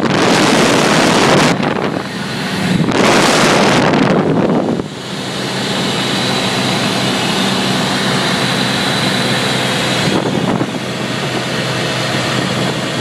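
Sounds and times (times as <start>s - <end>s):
light aircraft engine and propeller: 0.0s - 13.0s.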